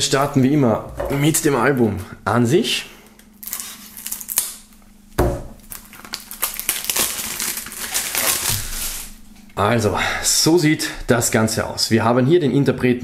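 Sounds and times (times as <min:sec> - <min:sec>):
plastic film crinkling: 0:03.4 - 0:04.8, 0:05.6 - 0:09.2
knife slitting plastic wrap: 0:05.6 - 0:09.2.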